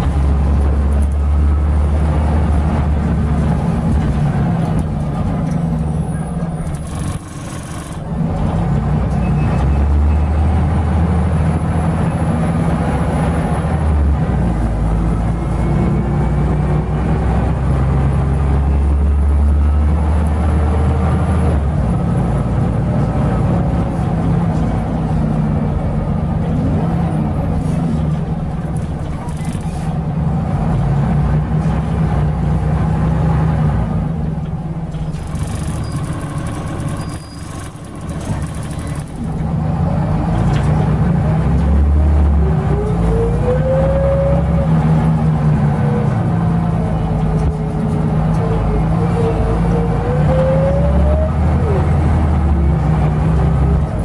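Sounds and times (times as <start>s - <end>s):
bus diesel engine droning: 0.0s - 54.0s
rising engine whine: 35.1s - 54.0s.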